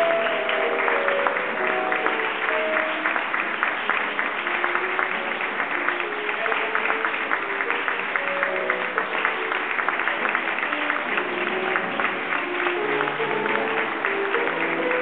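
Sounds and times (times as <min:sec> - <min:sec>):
audience applauding: 0:00.0 - 0:15.0
slow background music: 0:00.0 - 0:15.0.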